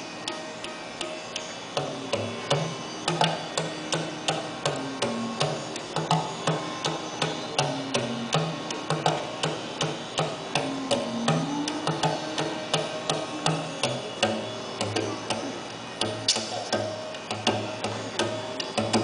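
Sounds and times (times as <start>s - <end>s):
bass drum pitch-bending notes: 10.1s - 17.9s.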